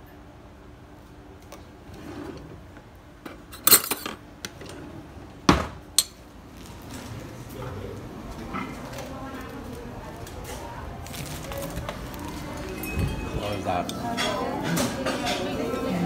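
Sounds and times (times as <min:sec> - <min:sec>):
cutlery clattering in drawer: 0:03.5 - 0:04.2.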